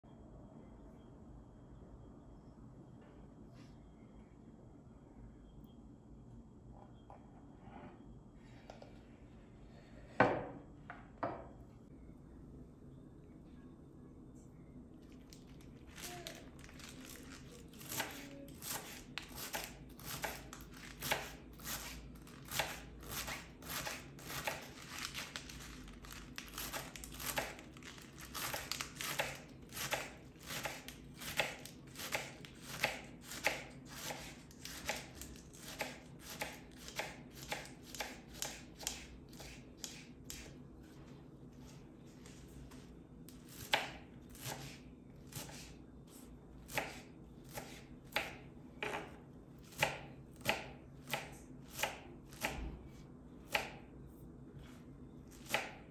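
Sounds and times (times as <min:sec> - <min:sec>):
knife slicing leaves on cutting board: 0:28.4 - 0:40.5, 0:43.5 - 0:45.7, 0:46.7 - 0:52.7.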